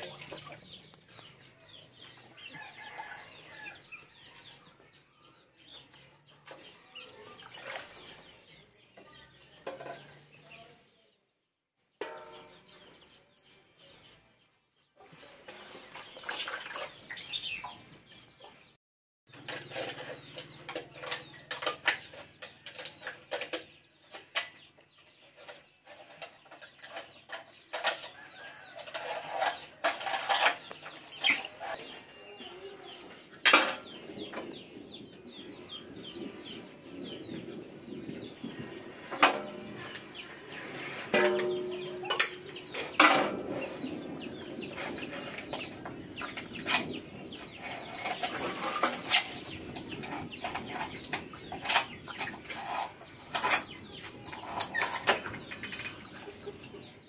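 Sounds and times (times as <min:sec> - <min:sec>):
clinks and knocks in metal basin: 0:09.5 - 0:10.3, 0:12.0 - 0:12.8, 0:19.3 - 0:24.5, 0:25.4 - 0:31.9, 0:33.4 - 0:34.0, 0:39.1 - 0:43.5.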